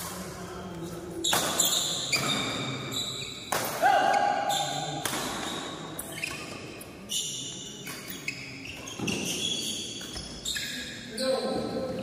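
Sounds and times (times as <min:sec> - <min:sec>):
racket hitting shuttlecock: 0:01.3 - 0:02.7, 0:03.5 - 0:04.1, 0:04.9 - 0:05.7.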